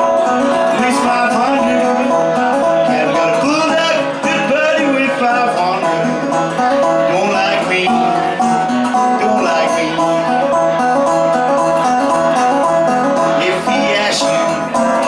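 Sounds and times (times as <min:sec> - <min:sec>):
plucked twangy guitar: 0:00.0 - 0:15.0
man singing into microphone: 0:00.5 - 0:06.4, 0:07.0 - 0:10.4, 0:13.2 - 0:14.9.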